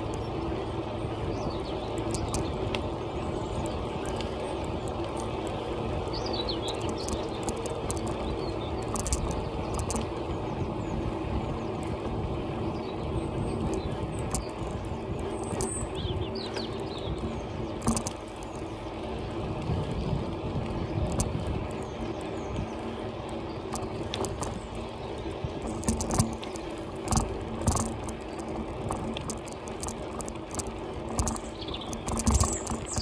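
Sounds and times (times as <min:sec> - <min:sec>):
bicycle tyres on tarmac: 0:00.0 - 0:33.0
bike clicking and rattling: 0:00.0 - 0:33.0.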